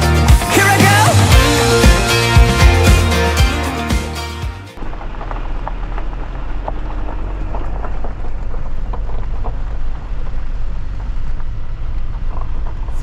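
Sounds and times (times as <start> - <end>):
engine and road rumble: 0.0 - 13.0
gravel crackling under tyres: 4.8 - 13.0.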